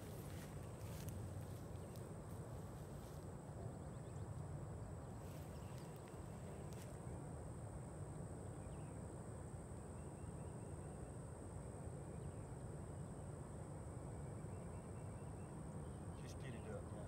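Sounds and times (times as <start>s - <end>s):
low steady rumble: 0.0s - 17.0s.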